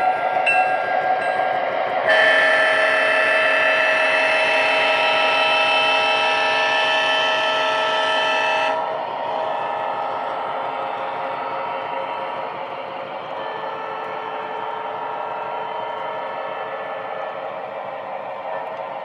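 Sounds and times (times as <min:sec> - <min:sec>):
model train rumbling: 0:00.0 - 0:19.0
train horn blast: 0:02.1 - 0:10.8, 0:13.3 - 0:17.3.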